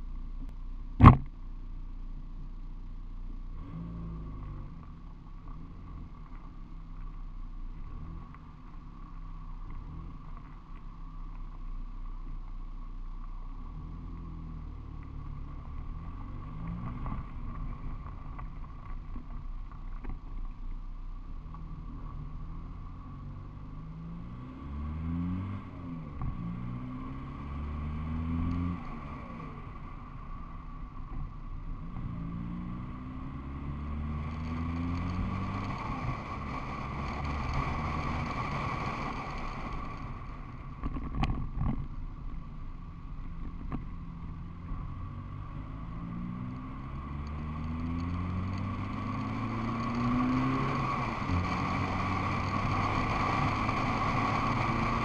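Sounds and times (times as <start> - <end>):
road noise: 0.0 - 55.0
car engine accelerating: 13.1 - 55.0.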